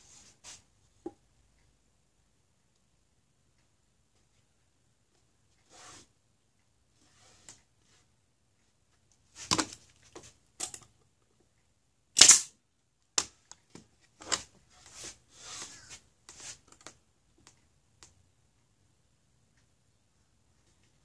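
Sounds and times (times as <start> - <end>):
nail gun shots into wood: 12.2 - 12.5.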